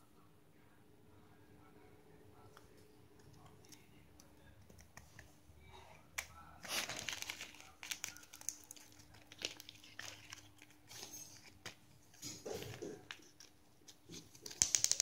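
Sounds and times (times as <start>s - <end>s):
paper packet crinkling: 6.4s - 15.0s.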